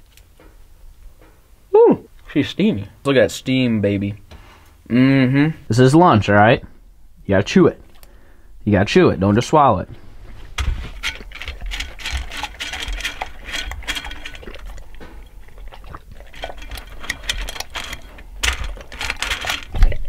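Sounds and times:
dog crunching kibble: 0:10.1 - 0:20.0
kibble rattling in bowl: 0:10.3 - 0:20.0.

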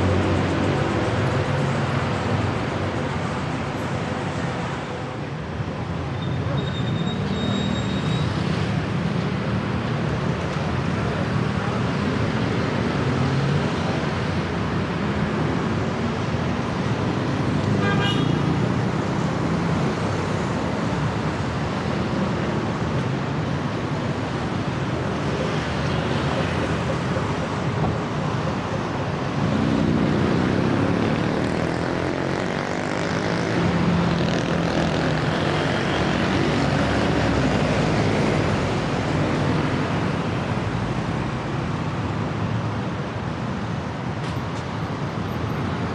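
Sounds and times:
city traffic roar: 0:00.0 - 0:45.9.

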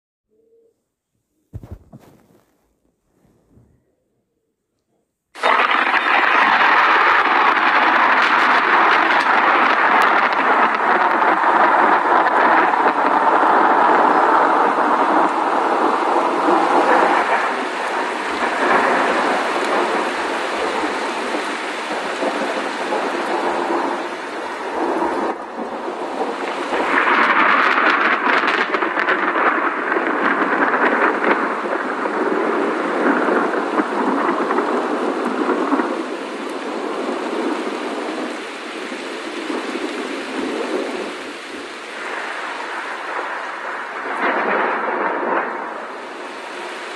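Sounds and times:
continuous rain: 0:05.3 - 0:46.9
thunder rolling: 0:05.4 - 0:46.9.

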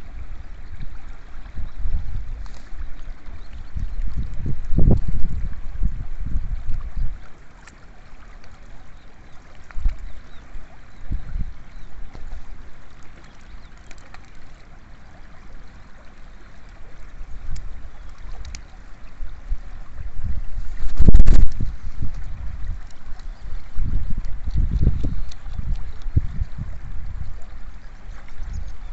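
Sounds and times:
wind rumbling on microphone: 0:00.0 - 0:07.4, 0:08.1 - 0:13.6, 0:15.0 - 0:28.9
shallow stream running: 0:00.0 - 0:28.9
duck flapping wings: 0:20.8 - 0:21.6.

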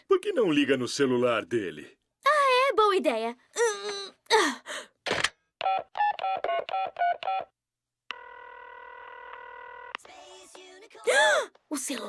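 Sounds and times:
telephone ringing tone: 0:05.6 - 0:07.5, 0:08.1 - 0:10.0.

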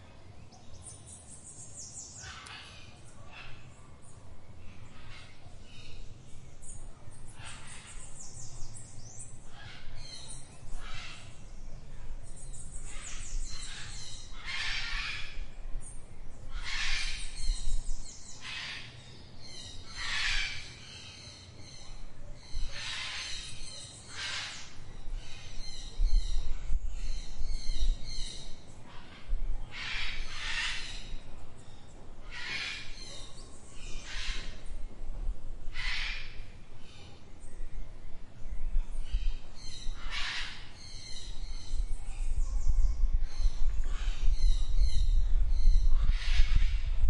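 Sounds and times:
birds harsh calls: 0:00.4 - 0:15.6, 0:16.4 - 0:34.9, 0:35.7 - 0:37.5, 0:38.9 - 0:47.0
low background rumble: 0:21.6 - 0:47.0.

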